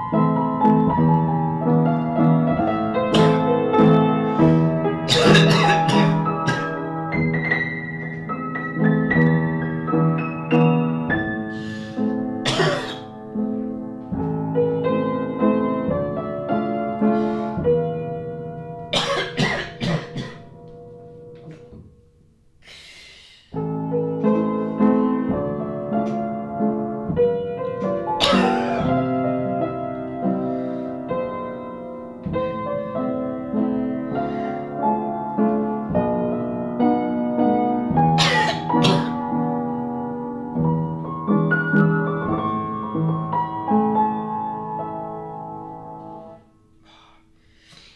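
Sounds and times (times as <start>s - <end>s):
solo piano: 0.0s - 22.6s, 23.5s - 47.7s
person coughing: 5.1s - 6.8s, 12.4s - 13.1s, 19.0s - 20.5s, 28.2s - 28.9s, 38.2s - 39.2s.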